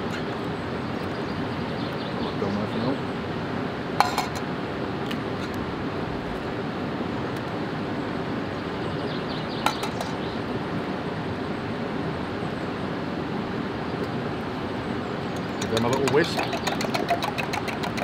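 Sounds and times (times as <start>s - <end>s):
egg cracking tap: 15.3s - 18.0s.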